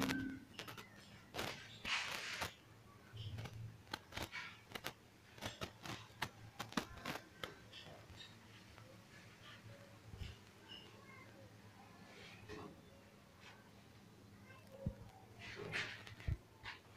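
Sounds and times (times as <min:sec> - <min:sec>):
rustling: 0:00.0 - 0:02.6.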